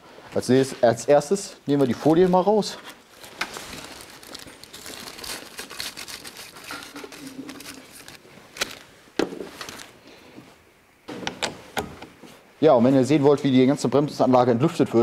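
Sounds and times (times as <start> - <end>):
plastic film crinkling: 1.7 - 10.0.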